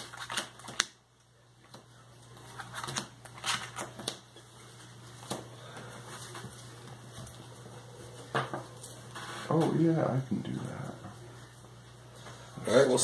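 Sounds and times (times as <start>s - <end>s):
cards clicking and slapping: 0.0s - 1.0s, 1.7s - 4.3s.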